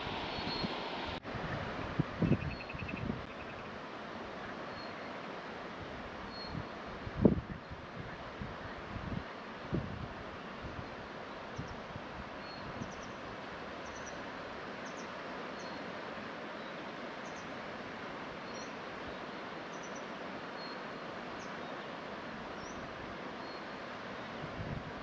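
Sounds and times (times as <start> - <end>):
river rushing: 0.0 - 25.0
small birds chirping: 2.3 - 3.7.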